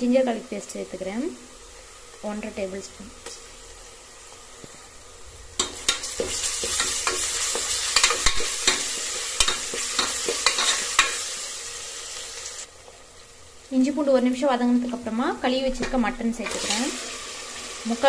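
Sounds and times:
onions sizzling in oil: 0.0s - 18.0s
metal spoon scraping a pot: 5.6s - 11.2s.

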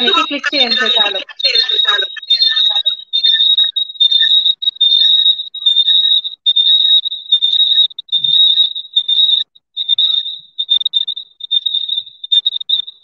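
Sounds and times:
high-pitched electronic tone: 0.0s - 3.1s.

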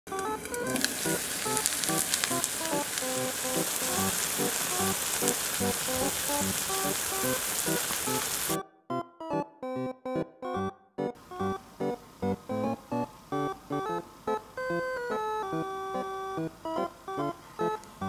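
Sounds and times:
light background music: 0.1s - 18.0s
pancake sizzling in a frying pan: 0.2s - 8.6s.

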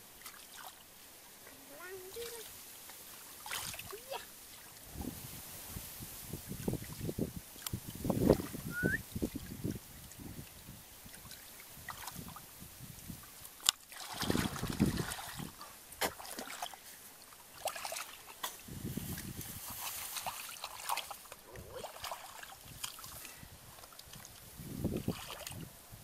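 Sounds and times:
water sloshing in plastic basin: 3.2s - 4.9s, 13.0s - 16.9s, 17.5s - 25.7s.

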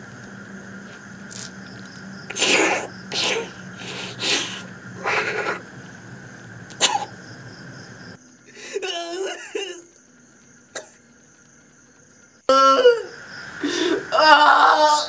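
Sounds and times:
faint steady hum: 0.0s - 15.0s
man making explosive breathy bursts: 2.3s - 5.6s.

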